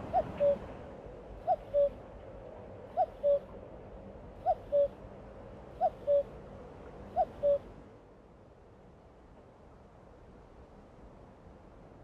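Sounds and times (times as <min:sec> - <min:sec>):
cuckoo singing: 0:01.4 - 0:02.0, 0:07.2 - 0:07.6.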